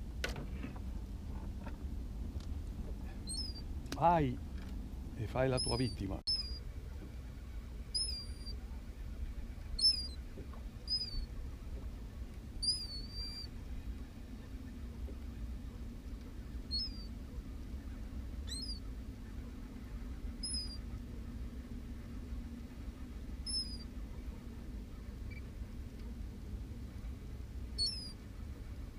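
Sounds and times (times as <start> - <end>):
low steady hum and rumble: 0.0 - 28.9
bird chirping: 3.2 - 3.6, 5.5 - 6.6, 7.9 - 8.6, 9.7 - 10.2, 10.8 - 11.3, 12.6 - 13.5, 16.7 - 17.1, 18.5 - 18.9, 20.4 - 20.8, 23.5 - 23.9, 27.8 - 28.2.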